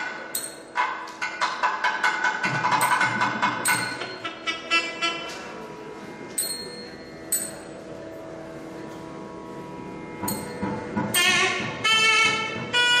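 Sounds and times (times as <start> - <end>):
drum strokes: 0.4 - 4.5
steady drone: 2.4 - 13.0.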